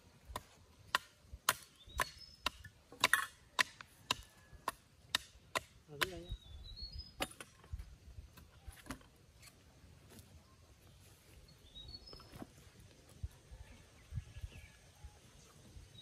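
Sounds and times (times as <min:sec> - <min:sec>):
faint bird chirps: 0:06.1 - 0:07.8, 0:10.2 - 0:16.0.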